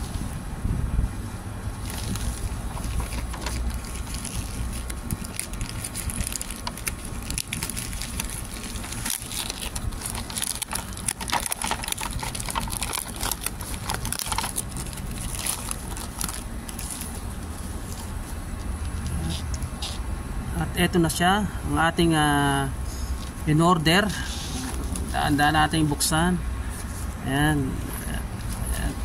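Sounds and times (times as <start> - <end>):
plastic bag crinkling: 1.8 - 18.1.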